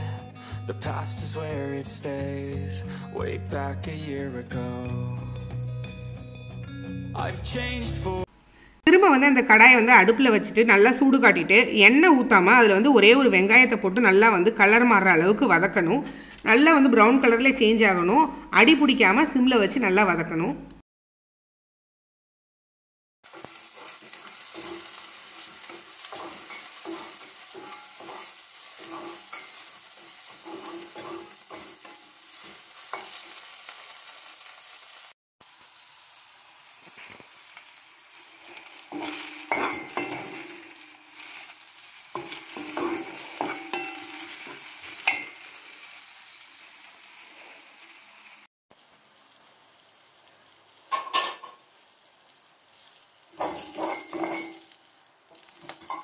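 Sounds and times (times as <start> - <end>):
onion sizzling in a wok: 8.5 - 20.3, 23.2 - 56.0
spatula scraping and knocking on iron: 30.4 - 32.0, 53.4 - 54.6.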